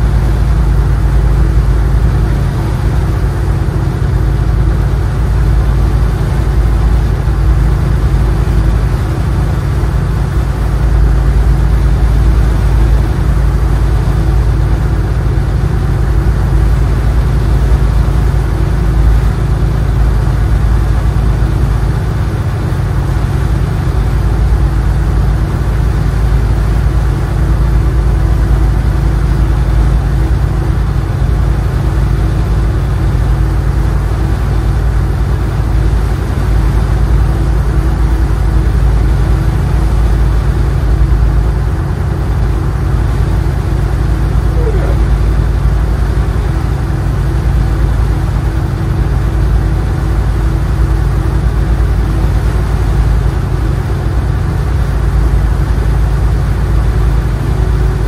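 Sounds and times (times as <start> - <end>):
boat engine idling: 0.0 - 58.0.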